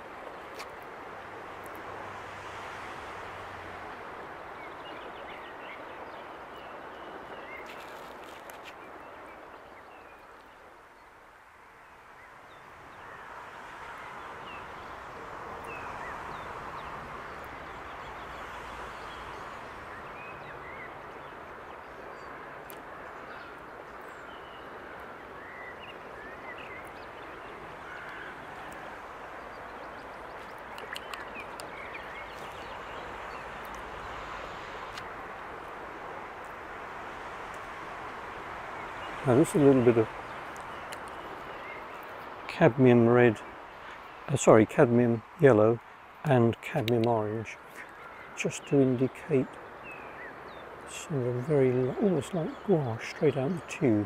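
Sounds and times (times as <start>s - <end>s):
light clicks: 30.4s - 31.8s.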